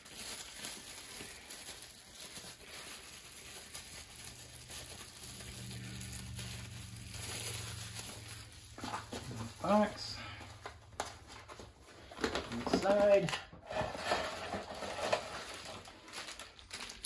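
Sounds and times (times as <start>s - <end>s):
bubble wrap crinkling: 0.0s - 17.0s
low steady hum: 2.2s - 12.6s.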